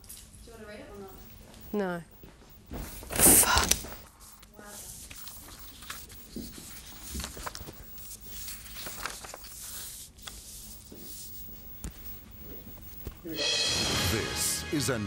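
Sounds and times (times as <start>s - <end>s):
paper rustling: 2.7s - 13.2s.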